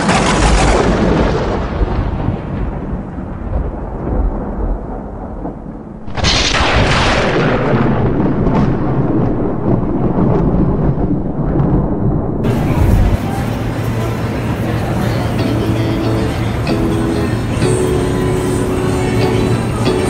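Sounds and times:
loud rumbling impact: 0:00.0 - 0:15.0
heavy low rumbling boom: 0:00.2 - 0:14.9.

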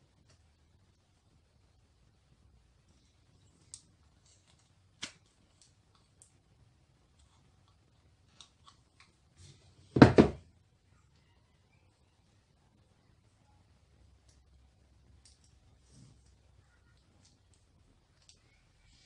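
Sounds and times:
loud thump with rattle: 0:10.0 - 0:10.4.

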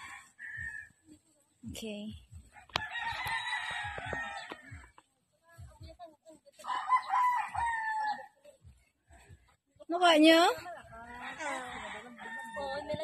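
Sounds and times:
rooster crowing: 0:00.0 - 0:00.9, 0:02.7 - 0:04.8, 0:06.6 - 0:08.3, 0:11.1 - 0:13.0.

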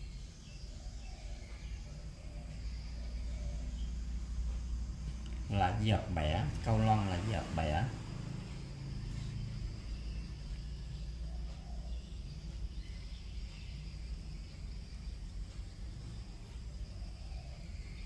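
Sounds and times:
faint high-pitched whine: 0:00.0 - 0:18.0
low rumbling hum: 0:00.0 - 0:18.0.

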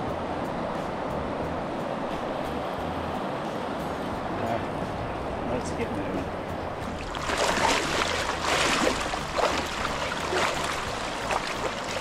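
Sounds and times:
river water rushing: 0:00.0 - 0:12.0
water splashes: 0:06.8 - 0:12.0.

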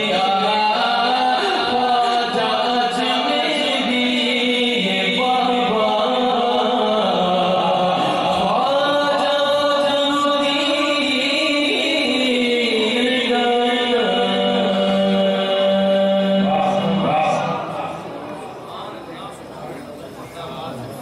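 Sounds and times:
man singing into a microphone: 0:00.0 - 0:18.0.

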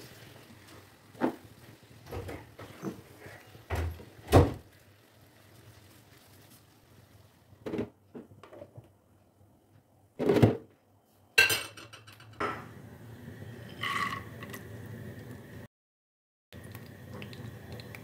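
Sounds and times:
spoon scraping frying pan: 0:13.7 - 0:14.4.

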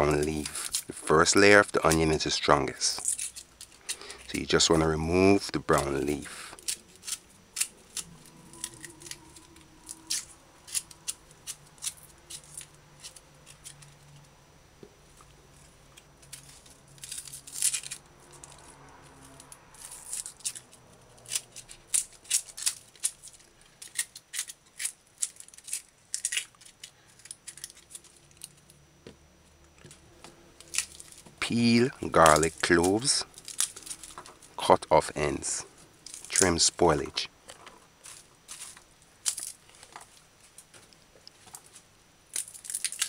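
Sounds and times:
onion skin crackling and tearing: 0:00.0 - 0:04.8, 0:05.5 - 0:14.3, 0:15.2 - 0:28.8, 0:30.6 - 0:34.7, 0:38.0 - 0:40.1, 0:42.3 - 0:43.0.

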